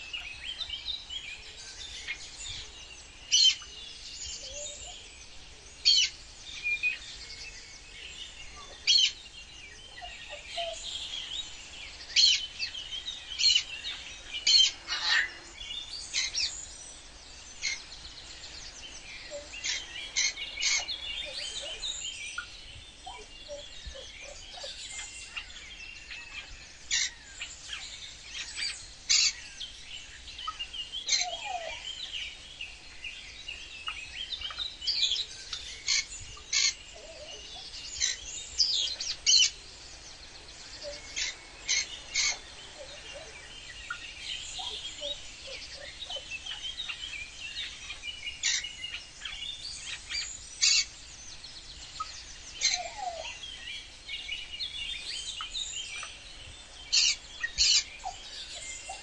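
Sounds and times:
birds chirping and calling: 0.0s - 59.0s
faint steady background noise: 0.0s - 59.0s.

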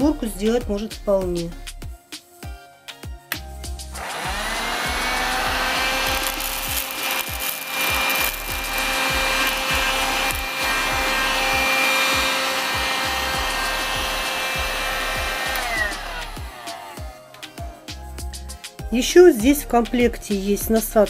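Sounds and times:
vacuum motor spinning down: 4.0s - 17.1s
handheld vacuum motor whine: 4.0s - 17.2s.

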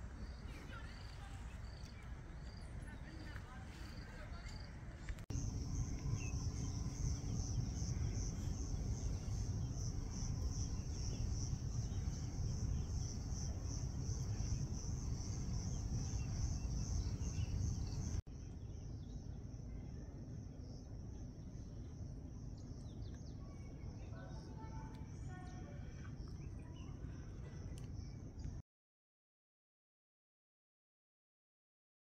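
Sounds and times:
low rumbling noise: 4.8s - 18.2s
insects trilling: 5.3s - 18.2s.

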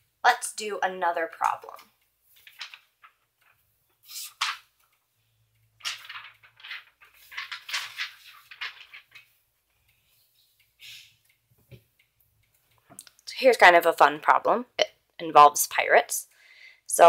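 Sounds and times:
paper rustling on plastic folder: 2.3s - 4.9s, 5.8s - 9.4s.

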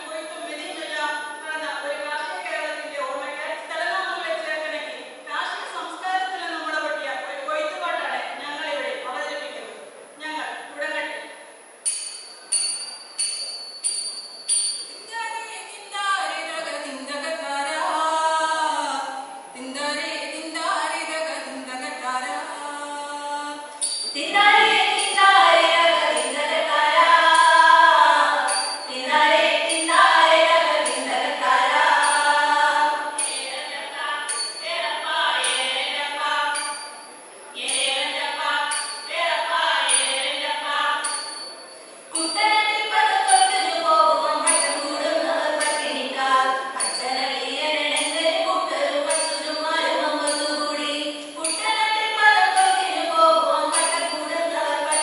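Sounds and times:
women singing folk song together: 15.9s - 36.7s, 42.2s - 55.0s.

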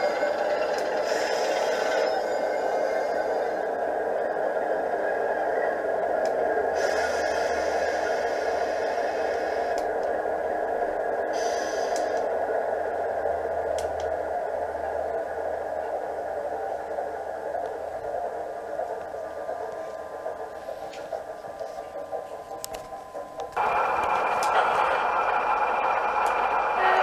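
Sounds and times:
hiss: 0.0s - 3.7s, 6.7s - 10.0s, 11.2s - 12.3s
diesel engine idling through speaker: 23.5s - 27.0s.

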